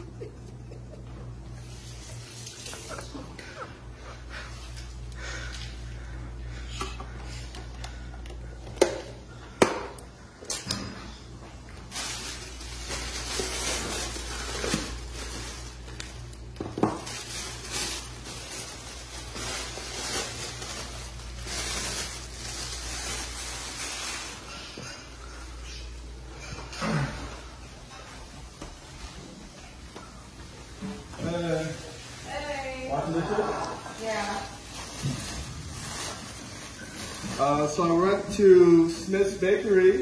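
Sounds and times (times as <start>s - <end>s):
steady low hum: 0.0s - 40.0s
plastic crinkling and rustling: 11.6s - 24.9s, 30.7s - 40.0s.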